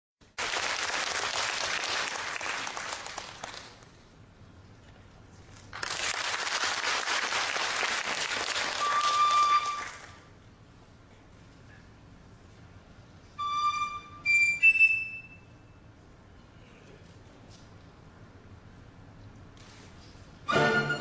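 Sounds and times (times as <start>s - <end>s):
audience applauding: 0.3s - 3.8s, 5.7s - 10.2s
short steady high note: 20.5s - 21.0s.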